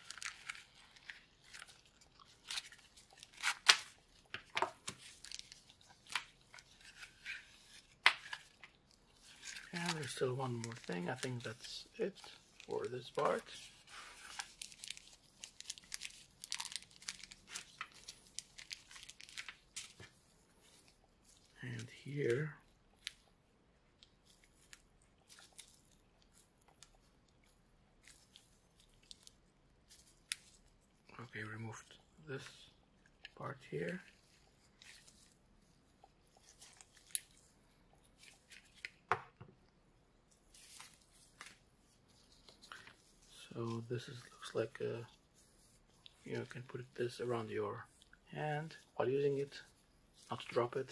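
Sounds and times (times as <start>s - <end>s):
packaging crinkling: 0.0s - 21.8s, 24.0s - 30.8s, 36.3s - 39.1s.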